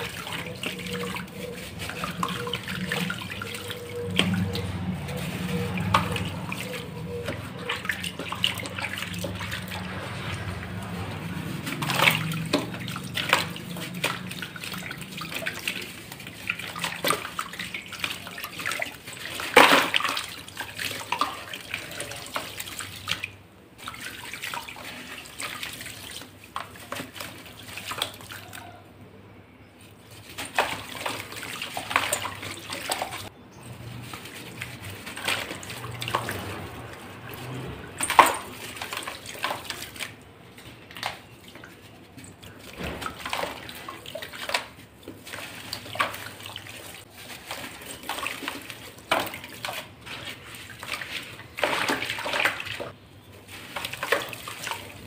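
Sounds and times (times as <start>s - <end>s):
wet dirt crunching and crumbling: 0.0s - 18.4s, 30.2s - 55.0s
drips falling into water: 0.0s - 28.8s, 34.3s - 55.0s.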